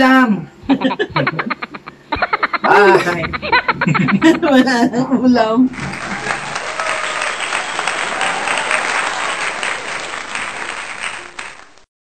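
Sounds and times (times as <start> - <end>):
crowd clapping: 5.7 - 11.9.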